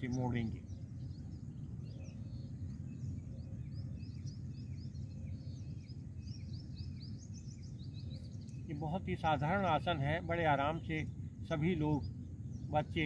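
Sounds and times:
low outdoor rumble: 0.0 - 13.0
small birds chirping: 0.0 - 13.0.

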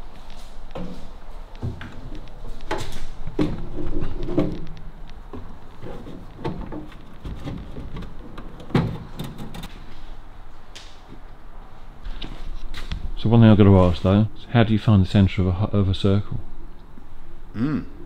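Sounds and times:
wooden dashboard knocking and scraping: 5.3 - 9.7.

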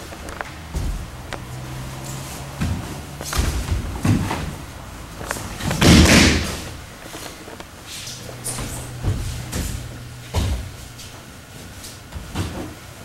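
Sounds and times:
bodies thumping on mat: 0.4 - 1.6, 2.5 - 7.3, 8.4 - 11.1, 12.1 - 12.8.

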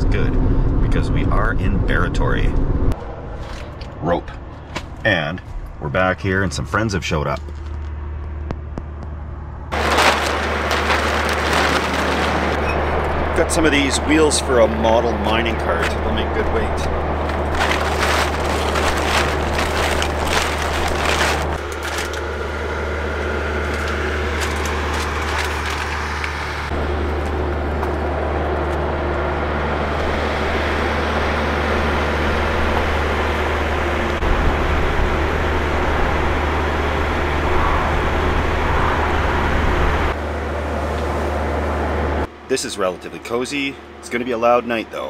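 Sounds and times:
highway traffic: 0.0 - 45.0
idling trucks: 10.4 - 45.0
gear knocking and rattling: 15.8 - 22.4.

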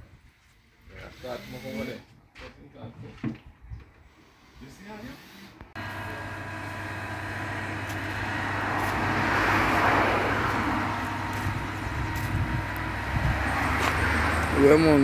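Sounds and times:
road vehicle passing: 5.8 - 15.0.

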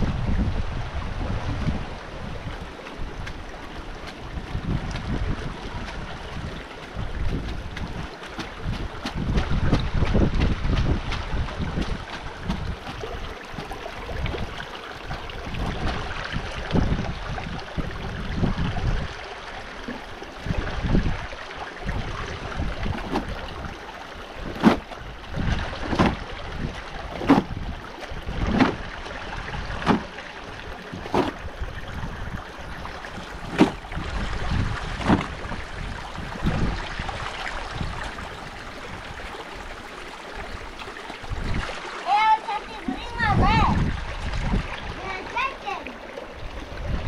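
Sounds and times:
river water rushing: 0.0 - 47.0
wind on microphone: 0.0 - 47.0
regular slaps or thumps: 7.2 - 13.0, 35.0 - 35.3.

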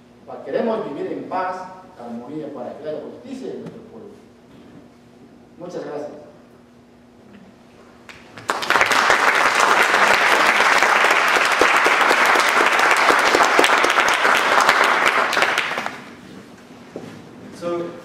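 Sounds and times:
audience applauding: 8.1 - 16.2.

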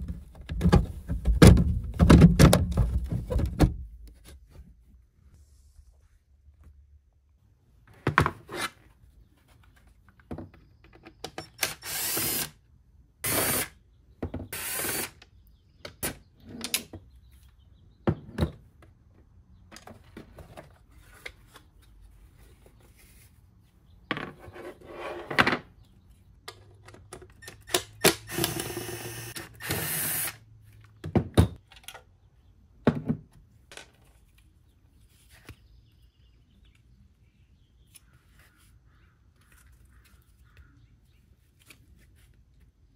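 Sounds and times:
impact driver running: 28.0 - 30.4.

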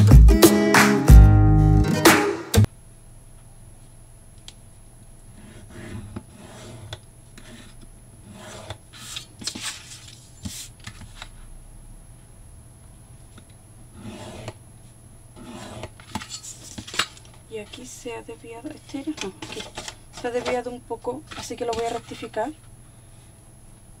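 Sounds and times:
tool scraping card along ruler: 5.4 - 11.1, 13.9 - 14.6, 15.4 - 16.8, 19.3 - 20.7, 21.3 - 22.4.

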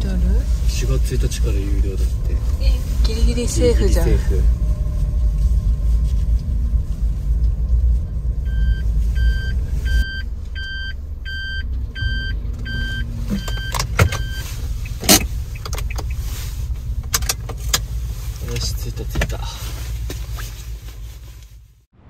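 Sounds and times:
van engine rumble: 0.0 - 22.0
reverse warning beeping: 8.4 - 16.3.

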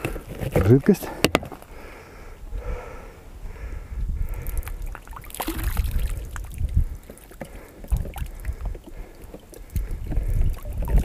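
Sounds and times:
wind rumble on microphone: 2.3 - 11.0
liquid pouring into water: 4.7 - 9.6.

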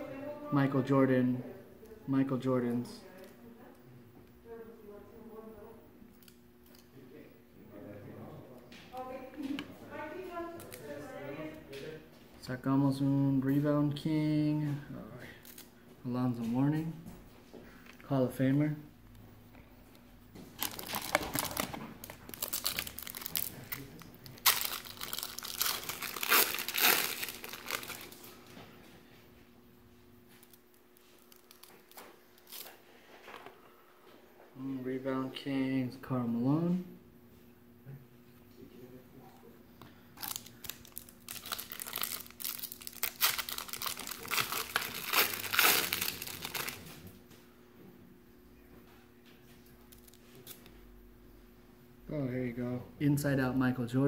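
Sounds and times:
plastic wrapper crinkling: 20.5 - 28.5, 30.4 - 32.8, 40.2 - 47.0.

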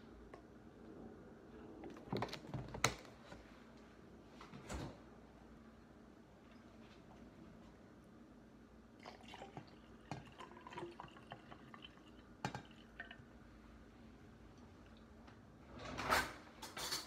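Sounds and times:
coffee splashing and trickling: 9.0 - 13.4.

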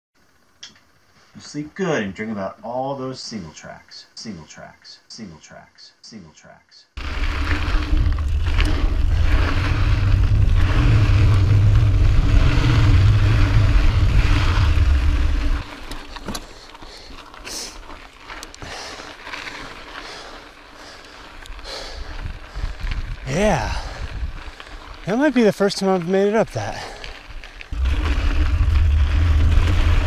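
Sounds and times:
wind rumble on microphone: 7.0 - 15.8, 21.4 - 25.1, 27.2 - 30.0
bike clicks and rattles: 7.0 - 30.0
bike tyres on dirt and gravel: 7.0 - 30.0.

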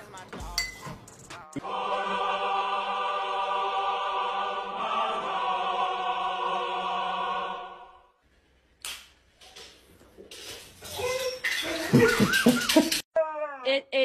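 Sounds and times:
choir singing sustained aah: 1.6 - 8.2.

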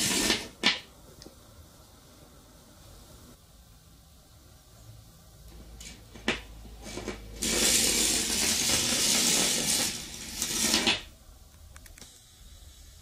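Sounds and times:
metallic rattling in wire coil: 6.8 - 11.1.

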